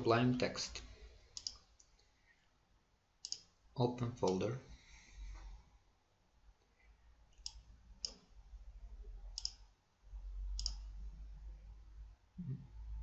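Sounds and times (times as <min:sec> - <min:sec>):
low steady hum: 0:00.0 - 0:13.0
computer mouse clicks: 0:01.4 - 0:02.1, 0:03.2 - 0:03.5, 0:09.4 - 0:09.6, 0:10.6 - 0:10.9.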